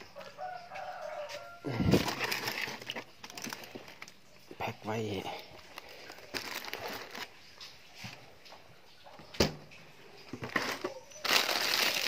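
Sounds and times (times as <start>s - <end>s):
plastic bags rustling: 0.0s - 9.2s, 10.2s - 12.0s
plastic crinkling: 0.2s - 4.5s, 5.4s - 8.2s, 10.3s - 12.0s.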